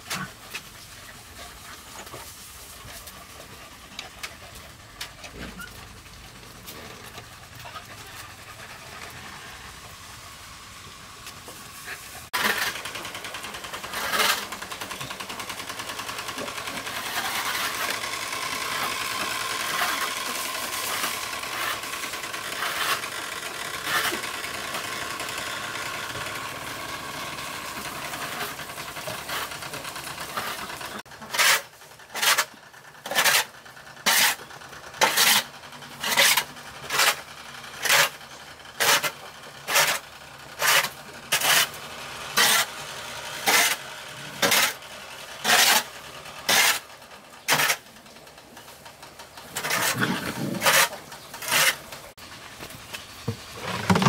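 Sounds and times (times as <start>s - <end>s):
tool scraping dirt floor: 0.0s - 54.0s
water wheel rattling and splashing: 53.4s - 54.0s.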